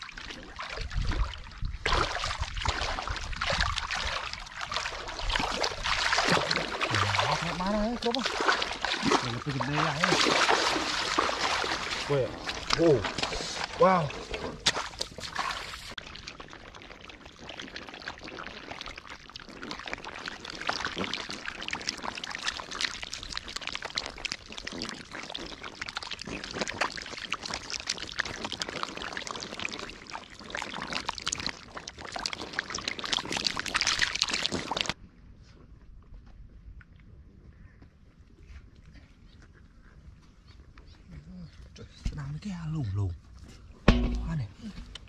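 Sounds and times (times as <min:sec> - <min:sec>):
catfish slapping and splashing: 0:00.2 - 0:16.4.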